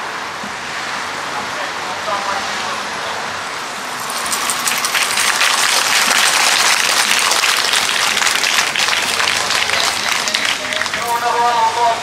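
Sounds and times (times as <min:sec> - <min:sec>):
crowd applauding: 0:03.9 - 0:11.3.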